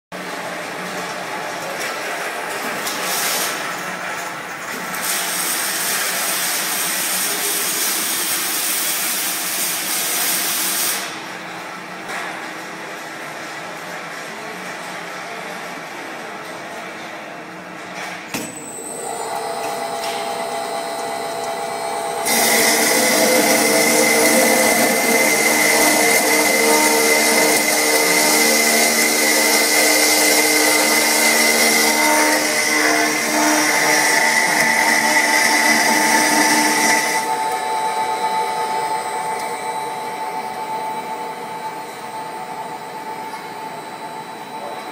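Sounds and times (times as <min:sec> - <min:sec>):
saw blade cutting metal tube: 0:20.0 - 0:37.6.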